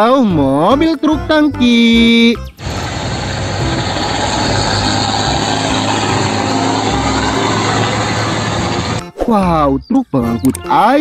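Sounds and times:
road noise: 2.5s - 9.0s
truck engine running: 2.6s - 9.0s.

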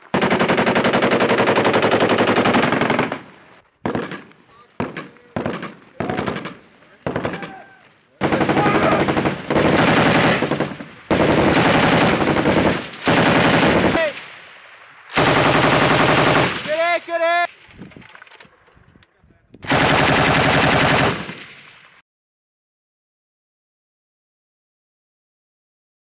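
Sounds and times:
machine gun bursts: 8.2s - 14.1s, 15.1s - 16.8s, 19.7s - 21.6s.

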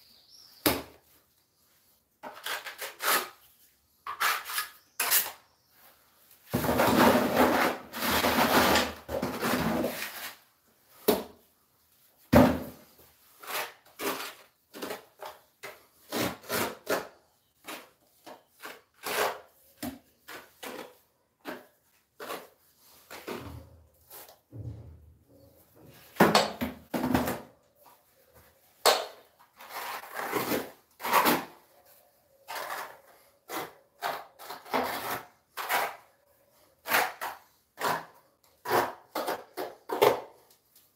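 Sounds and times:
trowel scraping mortar on concrete: 2.2s - 5.6s, 6.5s - 10.6s, 12.9s - 24.4s, 29.2s - 31.7s, 32.4s - 40.5s.

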